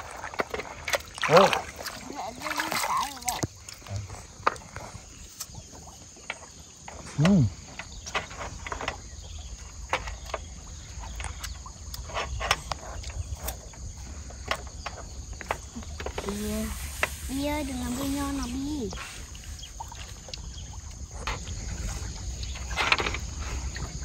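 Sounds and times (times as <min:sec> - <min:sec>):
faint high insect buzz: 0:14.3 - 0:20.7.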